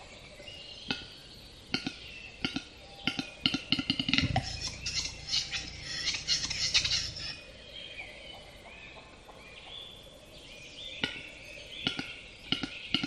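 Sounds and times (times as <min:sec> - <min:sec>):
bird sharp clicks: 0:01.7 - 0:07.3.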